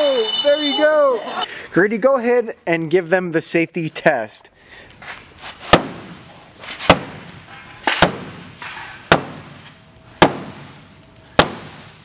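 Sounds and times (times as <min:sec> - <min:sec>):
hammer whacking plastic fender: 0:05.7 - 0:06.2, 0:09.1 - 0:09.6, 0:10.2 - 0:10.6, 0:11.4 - 0:11.9.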